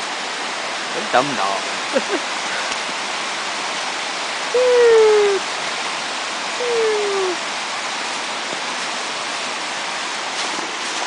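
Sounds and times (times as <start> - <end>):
voice-like falling tone: 4.6 - 5.4, 6.6 - 7.4.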